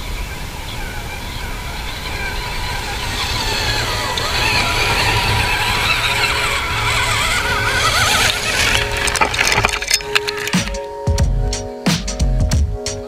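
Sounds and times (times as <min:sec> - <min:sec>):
toy truck electric motor whine: 0:02.3 - 0:10.5.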